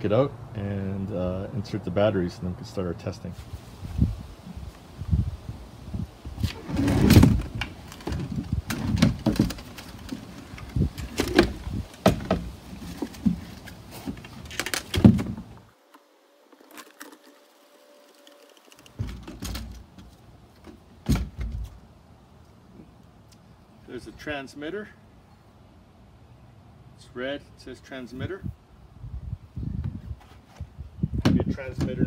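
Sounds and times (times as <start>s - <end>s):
plastic equipment knocking and clunking: 7.0s - 13.5s, 14.1s - 15.5s.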